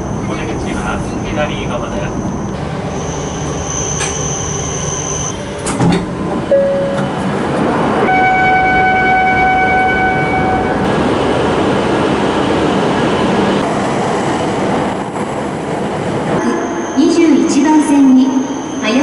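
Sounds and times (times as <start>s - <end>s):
steady high tone: 0.0s - 5.5s, 6.5s - 7.2s, 16.3s - 19.0s
train rushing noise: 0.0s - 19.0s.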